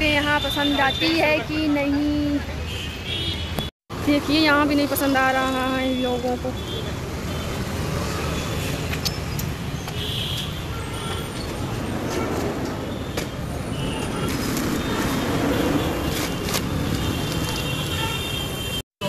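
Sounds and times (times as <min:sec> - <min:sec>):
road traffic noise: 0:00.0 - 0:19.0.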